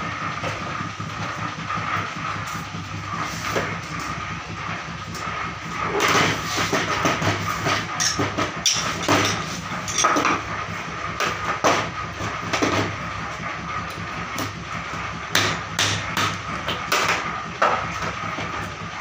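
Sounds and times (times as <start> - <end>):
metallic clanks and scrapes: 5.9 - 10.4.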